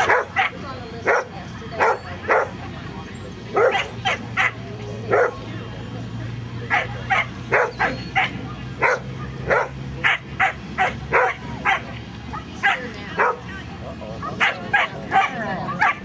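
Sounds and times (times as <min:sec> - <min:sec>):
dog barking: 0:00.0 - 0:02.5, 0:03.5 - 0:05.4, 0:06.7 - 0:11.9, 0:12.6 - 0:13.4, 0:14.2 - 0:16.0.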